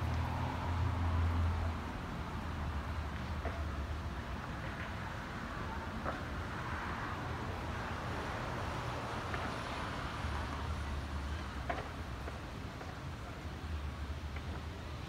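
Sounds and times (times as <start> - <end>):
cars driving past: 0.0 - 3.9.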